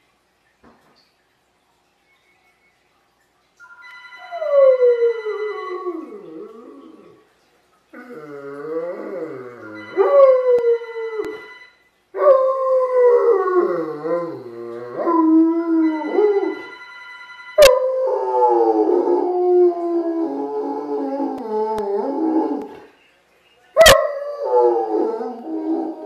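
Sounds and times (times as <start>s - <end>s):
dog howling: 4.2s - 7.2s, 8.0s - 11.4s, 12.2s - 16.7s, 17.6s - 22.8s, 23.8s - 26.0s
telephone ringing: 9.8s - 11.8s, 15.8s - 17.7s.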